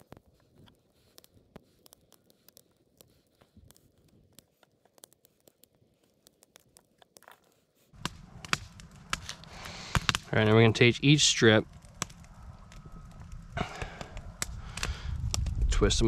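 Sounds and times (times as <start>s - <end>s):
faint clicks: 0.0s - 7.6s.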